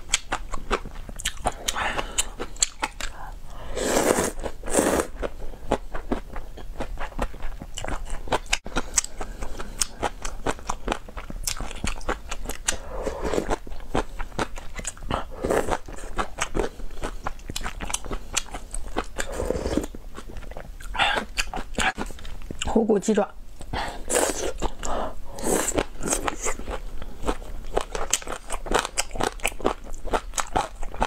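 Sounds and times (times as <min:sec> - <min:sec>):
person chewing with wet clicks: 0:00.0 - 0:03.3, 0:05.7 - 0:12.8, 0:13.4 - 0:22.8, 0:25.7 - 0:31.0
slurping noodles: 0:03.6 - 0:05.1, 0:12.7 - 0:13.6, 0:19.2 - 0:19.9.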